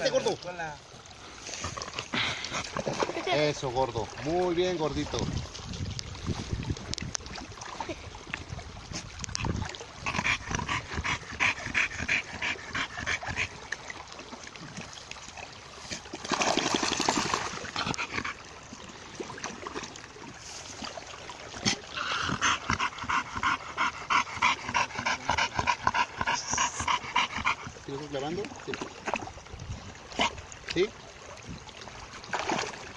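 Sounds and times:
water splashing: 0.0 - 32.9
dog panting: 10.0 - 13.6, 17.7 - 18.4, 22.0 - 28.0.

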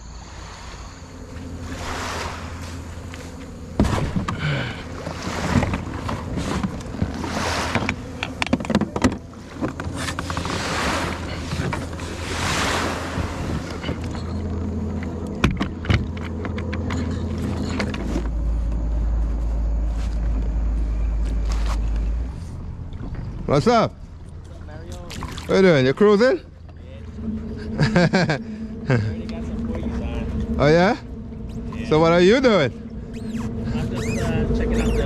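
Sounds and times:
water swooshing and splashing: 0.0 - 8.4, 9.2 - 15.5, 24.1 - 26.3, 26.9 - 35.0
wind rumble on microphone: 0.0 - 23.6, 26.8 - 35.0.

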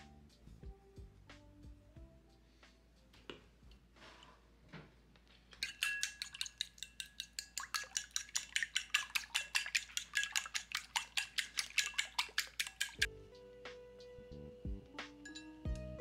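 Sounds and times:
fork clicking against ceramic bowl: 5.6 - 13.1.

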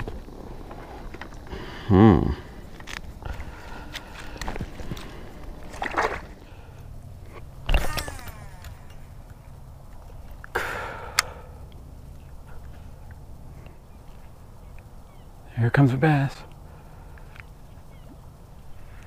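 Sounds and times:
wet weed rustling: 0.0 - 10.6
casting reel spool whirring: 2.7 - 9.6
water sloshing: 2.7 - 10.5
fishing rod swish: 7.7 - 8.6.

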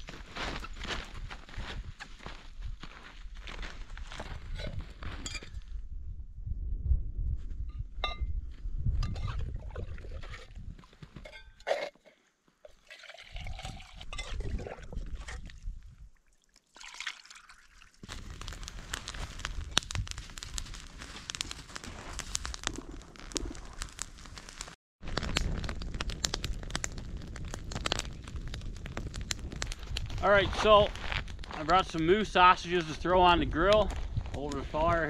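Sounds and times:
mug scooping and pouring water: 9.0 - 18.1
campfire crackling: 12.8 - 35.0.

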